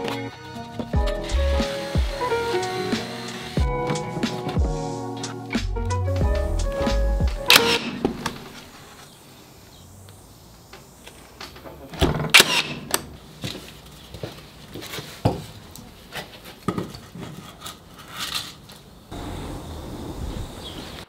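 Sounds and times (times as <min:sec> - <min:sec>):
steady low hiss: 0:04.0 - 0:14.7.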